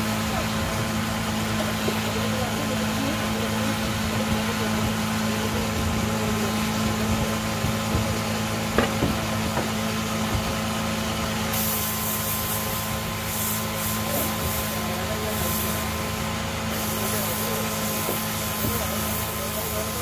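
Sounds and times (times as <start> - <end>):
sandpaper rubbing turning wood: 11.5 - 20.0.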